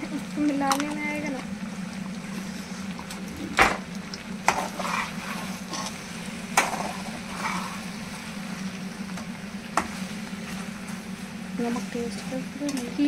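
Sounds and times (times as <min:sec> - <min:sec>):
steady low hum: 0:00.0 - 0:13.0
spatula scraping in pan: 0:04.4 - 0:08.7.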